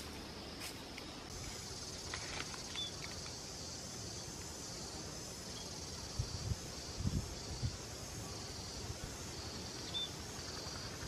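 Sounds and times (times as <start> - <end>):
high-pitched insect chorus: 0.0 - 11.0
light crackles: 0.6 - 3.5
bird chirp: 2.6 - 3.4, 9.7 - 11.0.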